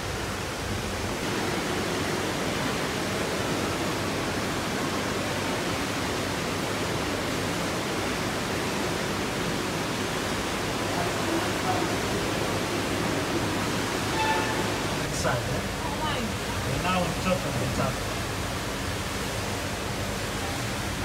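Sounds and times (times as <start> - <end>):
water rushing in aquarium tank: 0.0 - 21.0.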